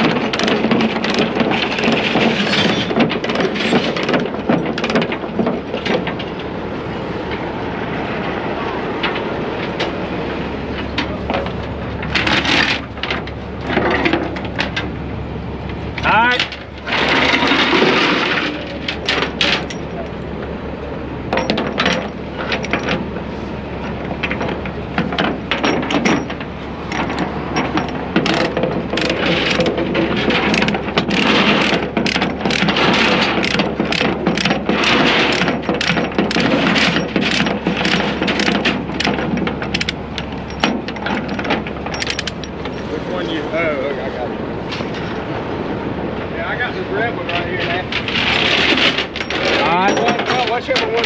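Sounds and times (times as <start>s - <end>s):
chain clanking on steel deck: 0.0s - 6.5s, 10.8s - 15.0s, 16.0s - 20.3s, 21.3s - 23.2s, 23.8s - 43.4s, 47.2s - 51.0s.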